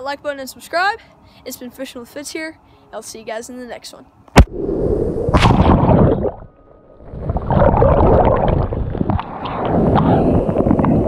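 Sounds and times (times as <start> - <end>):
surf splashing and gurgling: 5.3 - 11.0.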